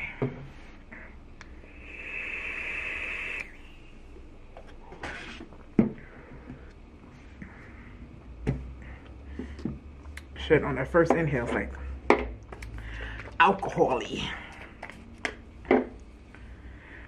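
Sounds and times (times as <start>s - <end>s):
vape atomizer hissing: 1.5s - 3.8s
breathy exhale of vapour: 1.6s - 3.7s.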